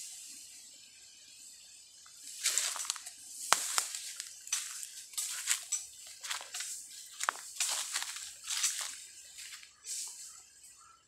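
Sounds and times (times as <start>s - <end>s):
dry leaves crunching and rustling: 2.2s - 10.4s
twigs snapping: 2.4s - 9.7s.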